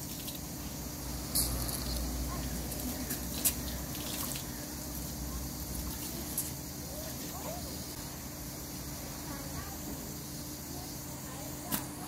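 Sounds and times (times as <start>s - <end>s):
hose water splashing on tiles: 0.0s - 12.0s.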